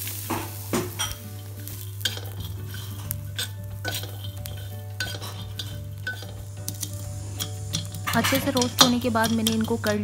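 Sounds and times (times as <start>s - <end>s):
metal spatula scraping pan: 1.0s - 10.0s
nuts rattling over pan: 1.0s - 10.0s.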